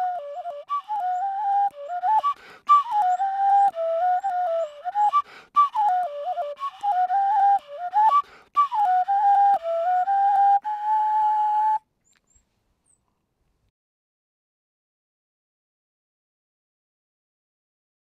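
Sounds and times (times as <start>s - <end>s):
whistle playing melody: 0.0s - 11.8s.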